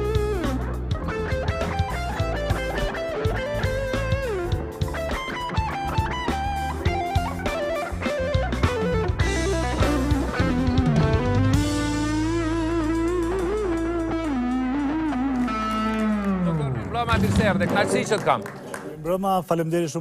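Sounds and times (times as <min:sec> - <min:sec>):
electric guitar lead melody: 0:00.0 - 0:18.1
drums: 0:00.0 - 0:18.6.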